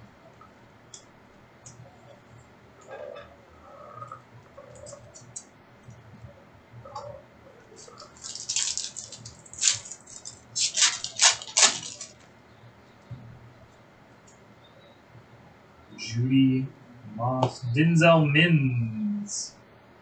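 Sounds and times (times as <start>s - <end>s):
trading cards crinkling and rustling: 7.8s - 12.3s.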